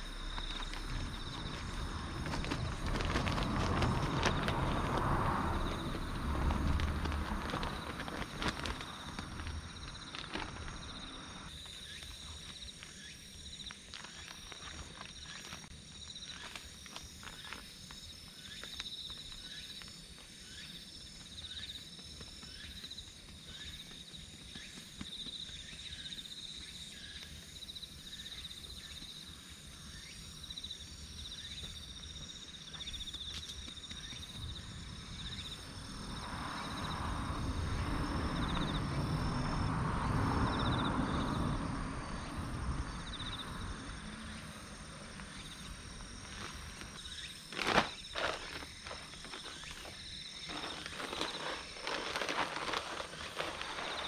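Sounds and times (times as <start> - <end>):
fertilizer powder shaken onto soil: 0.0 - 11.2, 45.2 - 54.0
insects trilling: 0.0 - 54.0.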